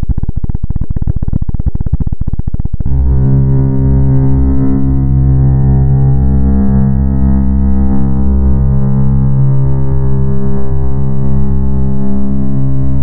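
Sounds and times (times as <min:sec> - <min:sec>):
dense drone of held tones: 0:00.0 - 0:13.0
rapid pulsing stutter: 0:00.0 - 0:13.0.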